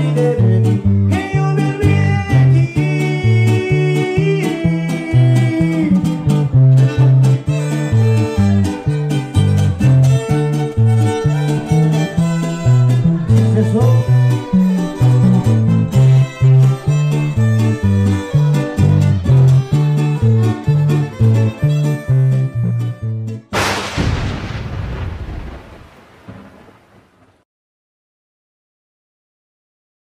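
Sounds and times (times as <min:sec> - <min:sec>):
violin melody: 0:00.0 - 0:23.5
strummed guitars: 0:00.0 - 0:23.6.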